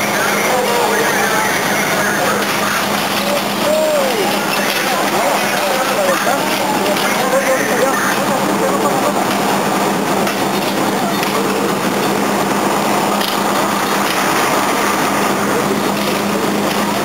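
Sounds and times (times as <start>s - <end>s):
fire engine motor and pump: 0.0s - 17.0s.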